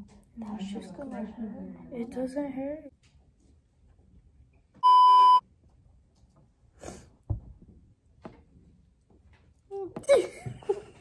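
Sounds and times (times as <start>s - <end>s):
faint clicks and knocks: 2.9s - 4.8s
electronic bleep tone: 4.8s - 5.4s.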